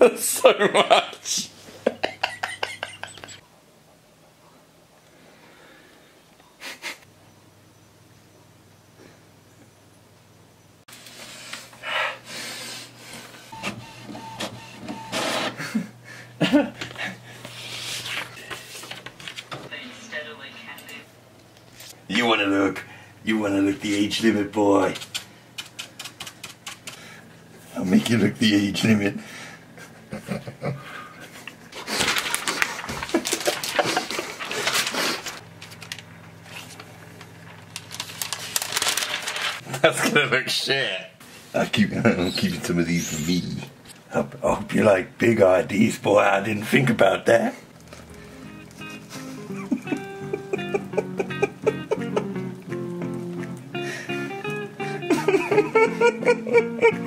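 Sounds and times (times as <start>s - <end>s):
printer motor hum and whirring: 13.5s - 15.6s
printer whine: 13.5s - 15.6s
paper rustling: 17.4s - 19.6s, 31.4s - 39.6s, 47.7s - 50.1s.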